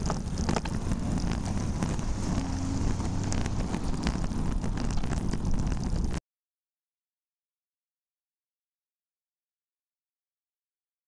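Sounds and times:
car and truck passing: 0:00.0 - 0:05.4
wind rumble on microphone: 0:00.0 - 0:06.2.

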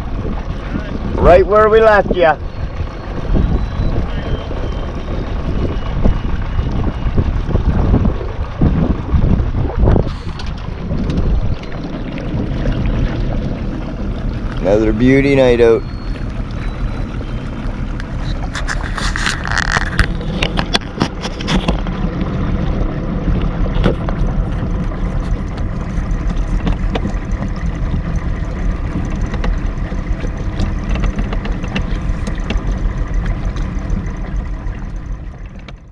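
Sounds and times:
outboard motor running: 0:00.0 - 0:35.9
boat hull knocking on waves: 0:19.9 - 0:35.9.

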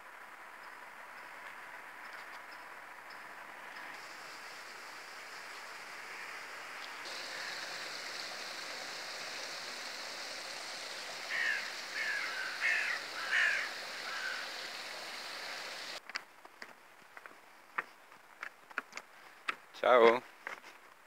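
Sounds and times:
water rushing from outlet: 0:03.9 - 0:16.0
crow cawing: 0:07.1 - 0:08.2, 0:11.1 - 0:15.7.

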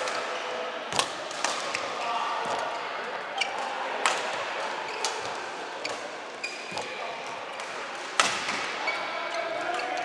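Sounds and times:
racket hitting shuttlecock: 0:00.9 - 0:01.8, 0:07.6 - 0:08.8
shoes squeaking on court floor: 0:03.3 - 0:03.7, 0:04.9 - 0:07.6.

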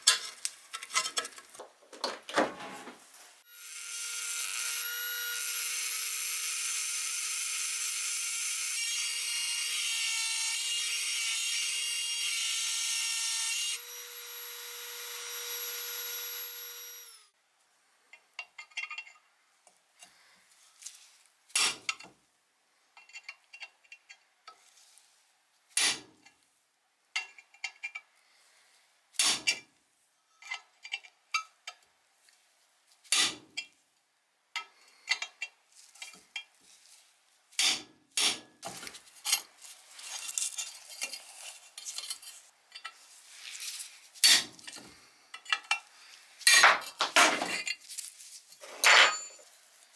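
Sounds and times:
metal pick scraping rust: 0:00.0 - 0:01.5, 0:30.2 - 0:31.8, 0:37.6 - 0:49.6
rotary grinder whining: 0:13.1 - 0:17.3.

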